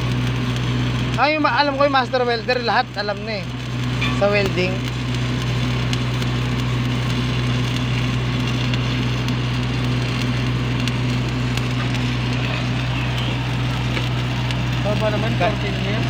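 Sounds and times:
generator humming: 0.0 - 16.0
welding arc crackling: 0.0 - 16.0.

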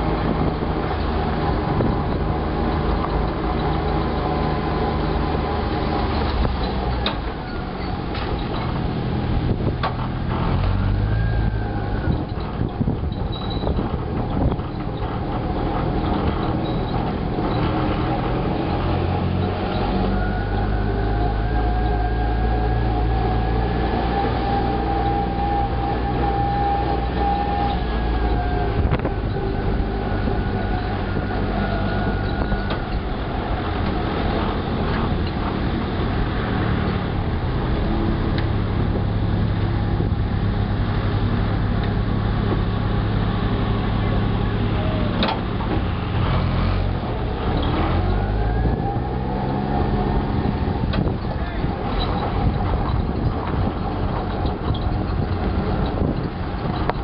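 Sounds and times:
utility vehicle engine whining: 0.0 - 57.0.

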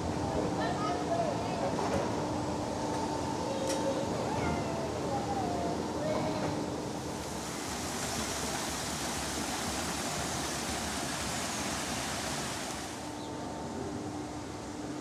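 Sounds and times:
running water rushing: 7.1 - 13.1.

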